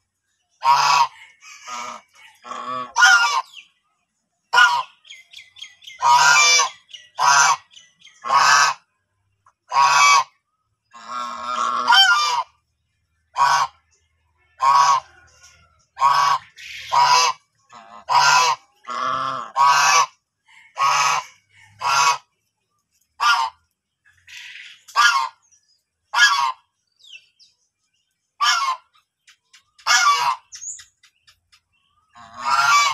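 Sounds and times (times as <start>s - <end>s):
geese honking: 0.6s - 3.7s, 4.5s - 5.1s, 5.8s - 8.9s, 9.6s - 12.6s, 13.3s - 13.9s, 14.5s - 22.3s, 23.2s - 23.6s, 24.2s - 25.4s, 26.1s - 27.2s, 28.4s - 29.0s, 29.8s - 30.6s, 32.1s - 32.9s.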